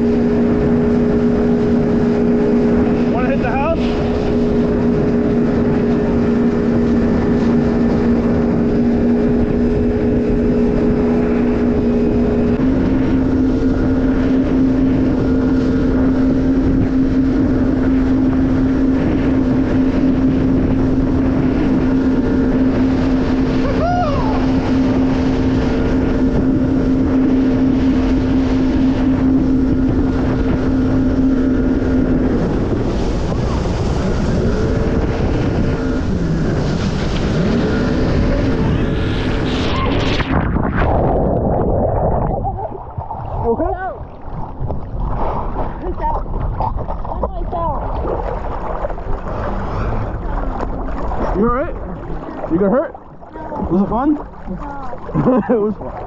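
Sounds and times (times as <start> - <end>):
jet ski engine running: 0.0 - 56.0
wind on microphone: 0.0 - 56.0.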